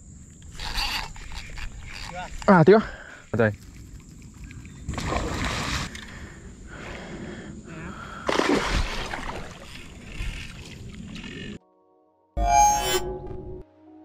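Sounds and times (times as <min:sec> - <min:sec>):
fish thrashing and splashing: 0:08.3 - 0:11.3.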